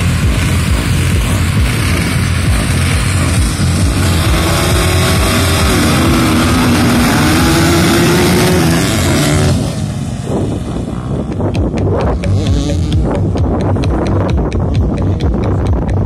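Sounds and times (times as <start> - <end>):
motocross bike engines revving: 0.0 - 16.0
scattered clicks: 11.2 - 16.0.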